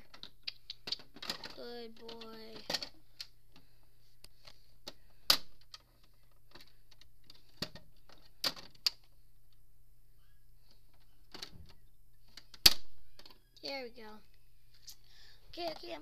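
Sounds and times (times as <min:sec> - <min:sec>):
plastic toys clicking and knocking: 0:00.0 - 0:03.7, 0:04.4 - 0:09.1, 0:10.9 - 0:13.5.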